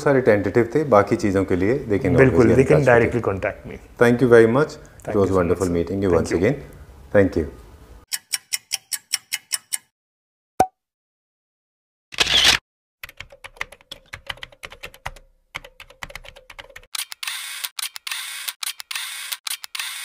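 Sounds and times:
sharp typing-like clicks: 12.2s - 20.0s.

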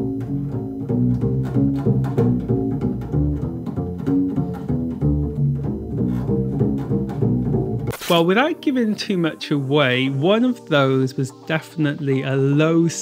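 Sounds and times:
double bass playing low notes: 0.0s - 8.0s.

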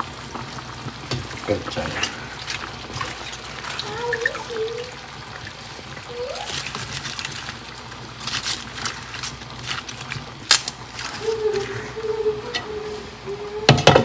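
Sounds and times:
broth bubbling with pops: 0.0s - 11.1s.

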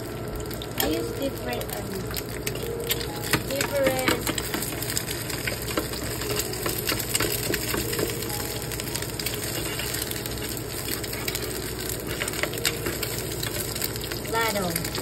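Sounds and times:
egg sizzling in oil: 0.0s - 15.0s
turner scraping pan: 9.2s - 13.9s.

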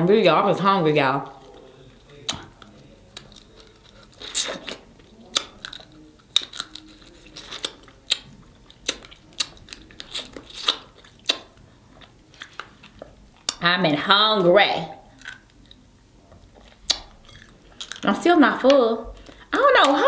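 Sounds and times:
chewing: 1.2s - 13.6s, 15.0s - 18.2s
crab shells cracking: 2.1s - 11.6s, 15.1s - 15.8s, 16.6s - 18.1s.

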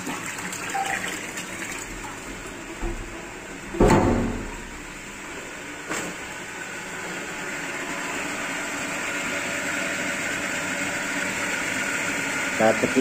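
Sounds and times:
water rushing through pump: 0.0s - 13.0s
motor hum: 1.4s - 13.0s.

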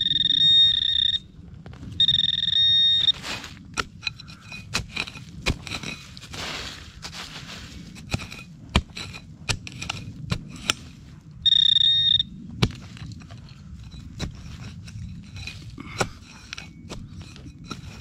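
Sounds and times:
metal detector beep: 0.0s - 1.4s, 2.0s - 3.2s, 11.4s - 12.3s
leaves rustling: 3.0s - 3.8s, 5.8s - 8.2s
trowel chopping and scraping soil: 3.0s - 11.2s, 12.6s - 18.0s.

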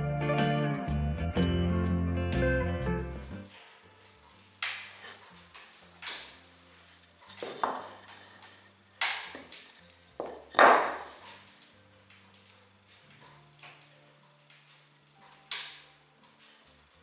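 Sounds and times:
wood knocks on workbench: 7.4s - 7.9s, 10.2s - 11.1s.

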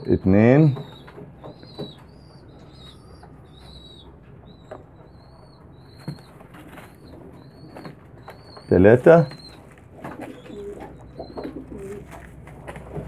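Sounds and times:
high-pitched bird chirps: 0.8s - 9.7s.

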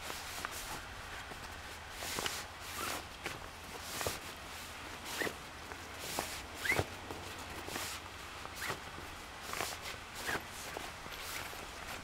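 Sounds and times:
fabric rustling swishes: 0.0s - 12.0s
fabric squeaking on metal: 5.1s - 5.4s, 6.6s - 6.9s.

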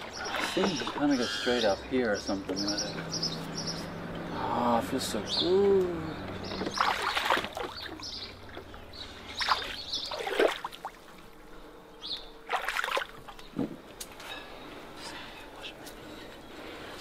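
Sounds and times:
feet splashing in shallow water: 6.3s - 11.4s, 12.4s - 13.8s.

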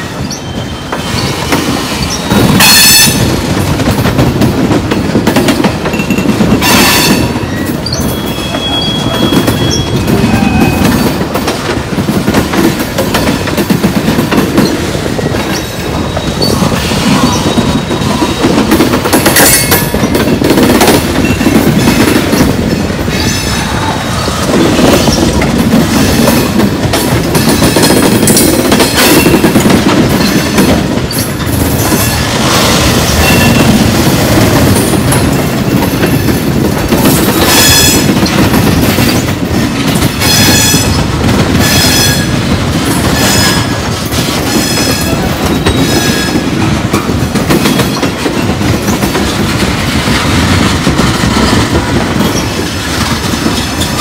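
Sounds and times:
train wheels clacking over rail joints: 0.0s - 54.0s
high-pitched wheel squeals: 6.6s - 11.0s.

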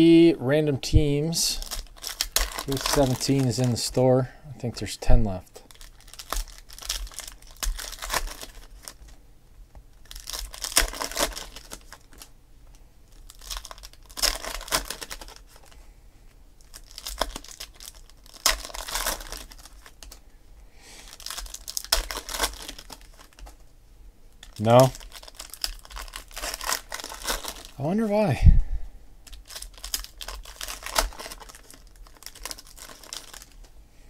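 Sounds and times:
foil wrappers tearing and crinkling: 1.5s - 4.0s, 5.6s - 9.2s, 10.0s - 12.3s, 13.1s - 15.8s, 16.6s - 20.2s, 21.0s - 23.6s, 24.4s - 27.8s, 29.2s - 33.7s.

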